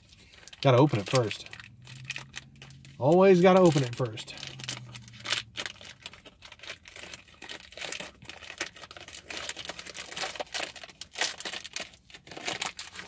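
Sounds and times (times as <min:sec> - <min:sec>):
plastic wrapper crinkling and tearing: 0:00.0 - 0:13.0.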